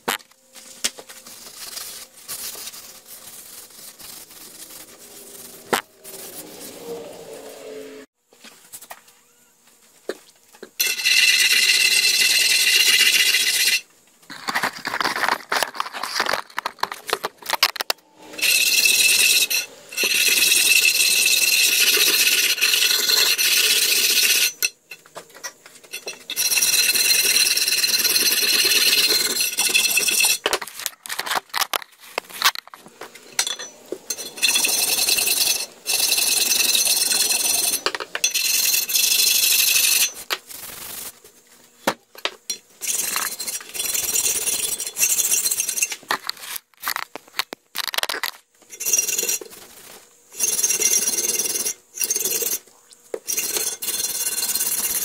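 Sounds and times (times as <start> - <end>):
file scraping metal: 1.3 - 8.0, 10.8 - 13.8, 17.7 - 25.0, 25.8 - 30.5, 33.2 - 40.3, 42.8 - 46.6, 50.4 - 52.6, 53.3 - 55.0.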